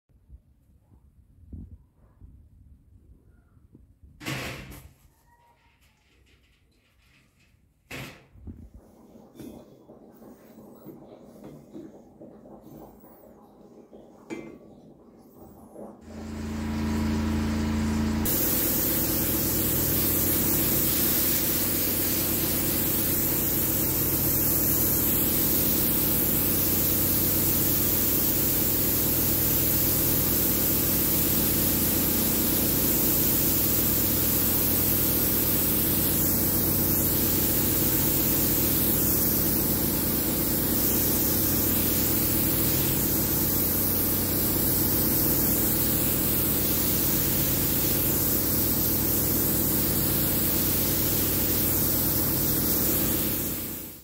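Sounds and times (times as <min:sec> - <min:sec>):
motor humming: 0:16.0 - 0:20.9
spray gun hissing: 0:16.0 - 0:54.0.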